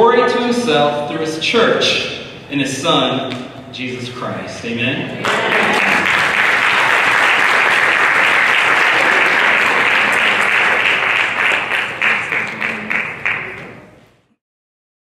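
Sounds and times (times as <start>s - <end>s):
audience applauding: 5.2s - 13.9s.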